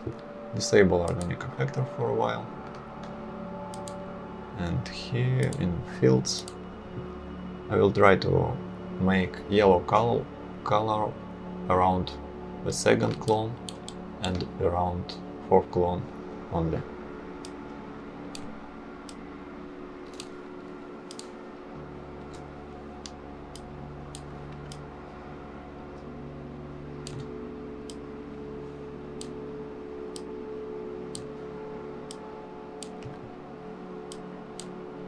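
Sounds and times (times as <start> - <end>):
steady low hum: 0.0 - 35.0
computer mouse clicking: 1.0 - 1.4, 3.7 - 4.0, 5.4 - 5.6, 20.1 - 20.4, 21.1 - 21.4, 23.0 - 24.8, 27.0 - 28.0, 31.1 - 31.3, 32.8 - 33.2, 34.1 - 34.8.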